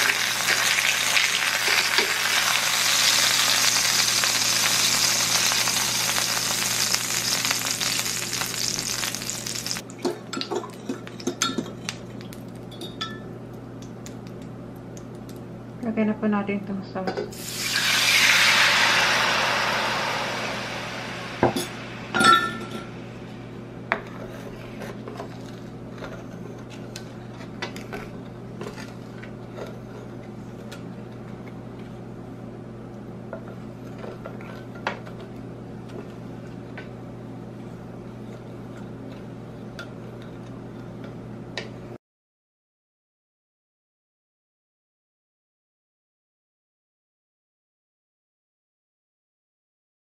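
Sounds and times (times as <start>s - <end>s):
liquid pouring into skillet: 17.4s - 21.4s
glass cup clinking against pan: 21.5s - 22.9s.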